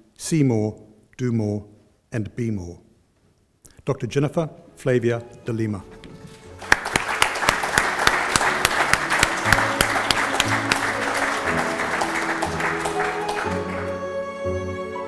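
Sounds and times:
soft instrumental music: 0:04.4 - 0:15.0
audience applauding: 0:06.6 - 0:14.2.

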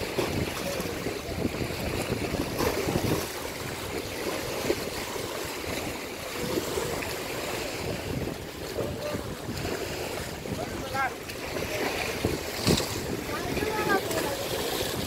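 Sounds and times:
river water rushing: 0:00.0 - 0:15.0.

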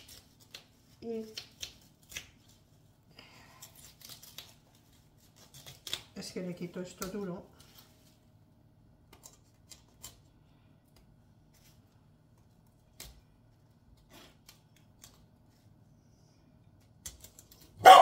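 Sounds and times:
knife cutting cauliflower: 0:03.5 - 0:06.2.

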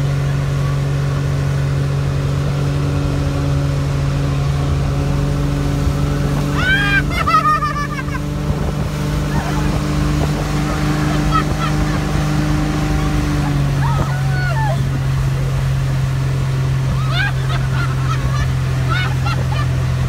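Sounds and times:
motorboat engine running: 0:00.0 - 0:20.0
person yelling: 0:06.5 - 0:07.6, 0:12.8 - 0:15.0.

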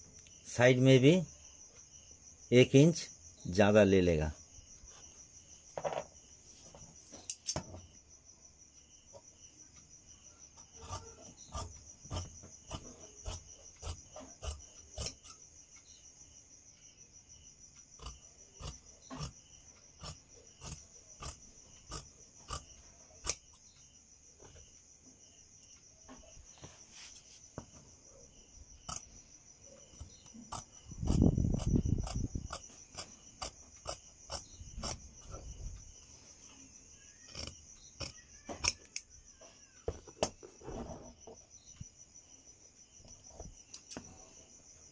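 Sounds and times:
crickets chirping: 0:00.0 - 0:44.9
scissors snipping fabric: 0:10.6 - 0:15.4, 0:20.0 - 0:23.5.

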